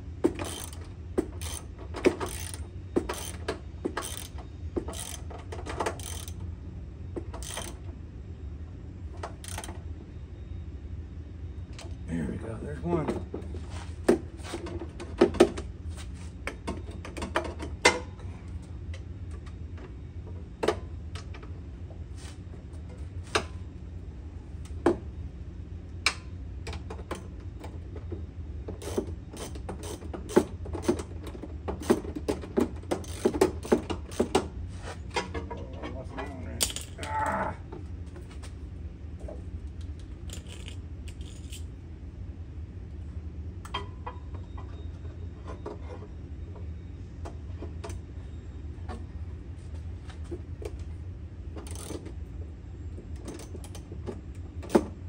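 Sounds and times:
ratchet and wrench clicking: 0.3s - 6.4s, 7.4s - 7.8s, 9.4s - 9.7s, 28.8s - 31.0s, 33.0s - 34.4s, 40.3s - 41.6s, 51.6s - 52.0s.

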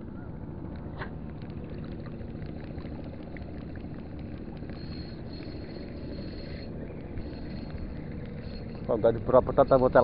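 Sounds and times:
faint high whine: 0.0s - 10.0s
spinning reel ticking: 4.0s - 10.0s.

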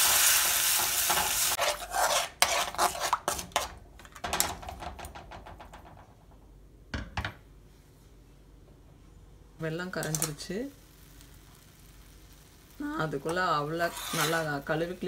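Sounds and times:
sizzle: 0.0s - 2.6s, 9.6s - 15.0s
spoon scraping metal pan: 0.0s - 3.8s, 13.7s - 14.6s.

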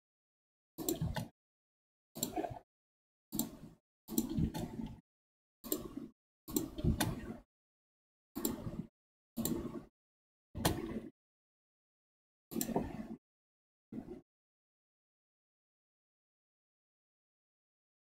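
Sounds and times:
mouse and keyboard clicks: 3.4s - 5.0s.

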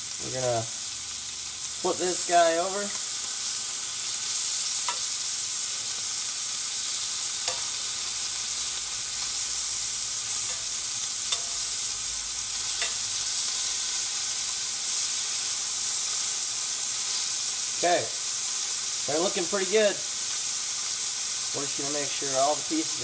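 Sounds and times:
meat sizzling in a pan: 0.0s - 23.0s
metal tongs clicking on pan: 4.8s - 5.2s, 7.4s - 7.9s, 10.4s - 11.8s, 12.6s - 13.1s.

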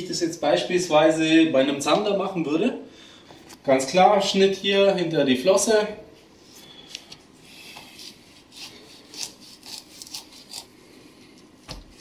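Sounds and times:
knife cutting fish: 7.8s - 10.8s.

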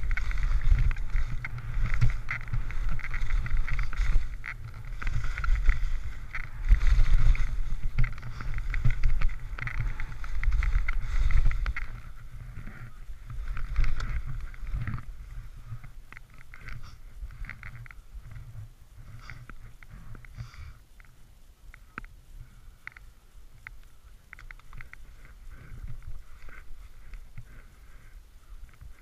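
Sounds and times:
skis scraping over snow: 0.0s - 20.7s
wind rumbling on microphone: 0.0s - 29.0s.

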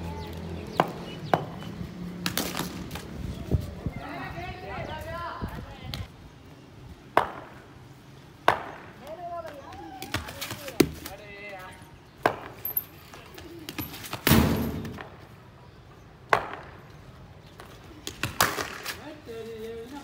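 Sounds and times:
ball landing on concrete: 8.4s - 11.1s, 12.2s - 12.7s.

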